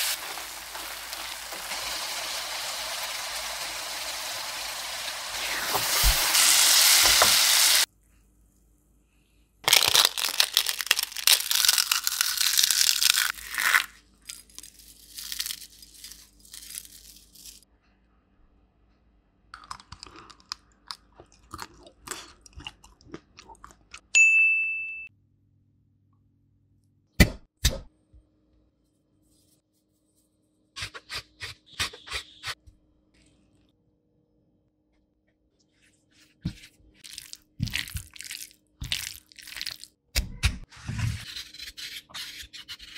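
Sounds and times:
food sizzling in a pan: 0.0s - 7.9s
short ding: 24.2s - 25.1s.

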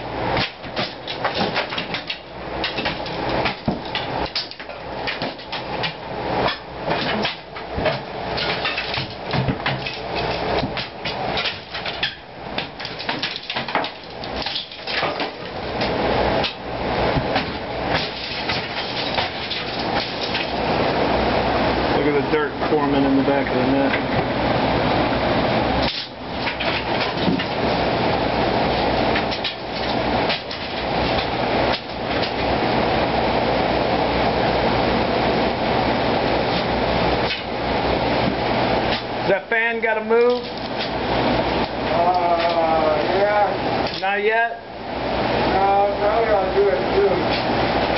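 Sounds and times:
drum fan humming: 0.0s - 47.9s
knocks and rattles: 0.4s - 16.6s.

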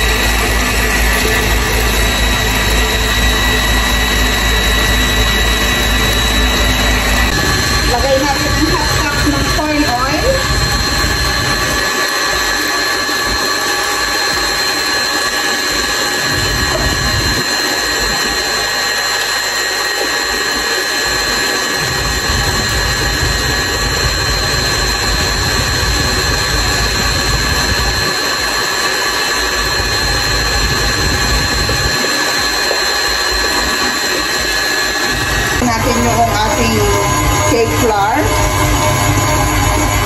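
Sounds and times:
stand mixer motor whine: 0.0s - 40.0s.

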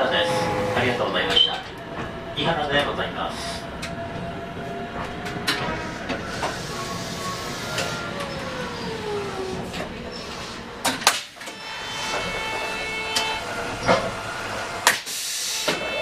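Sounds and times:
tram interior rumble: 0.0s - 16.0s.

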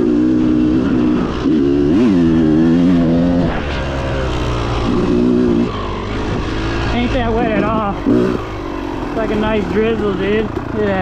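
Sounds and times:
off-road vehicle engine revving: 0.0s - 11.0s.

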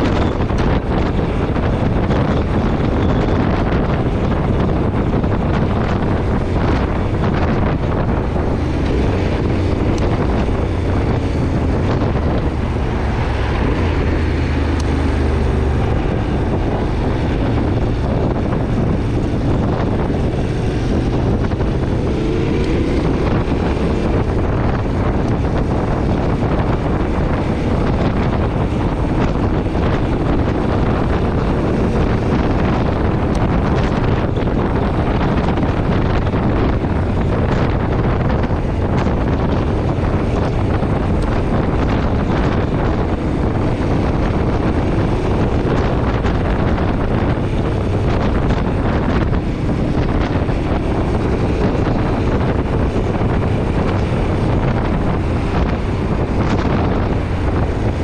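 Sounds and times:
motorcycle engine running: 0.0s - 58.0s
wind buffeting microphone: 0.0s - 58.0s.

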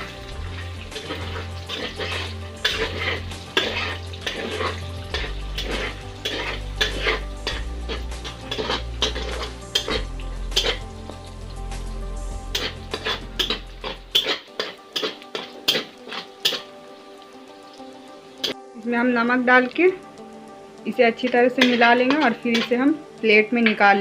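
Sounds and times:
eggs sizzling in oil: 0.0s - 24.0s
spatula scraping a pan: 0.8s - 11.0s, 12.5s - 16.8s, 21.6s - 22.8s.

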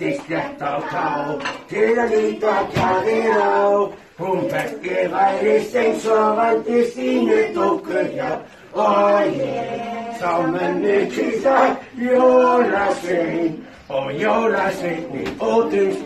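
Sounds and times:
group singalong: 0.0s - 16.0s
man singing: 9.7s - 16.0s.

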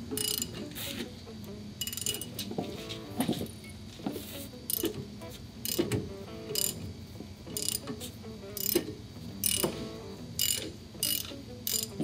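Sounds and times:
ratchet wrench clicking: 0.1s - 0.7s, 1.8s - 2.4s, 4.7s - 5.0s, 5.6s - 6.8s, 7.5s - 8.0s, 8.6s - 12.0s.

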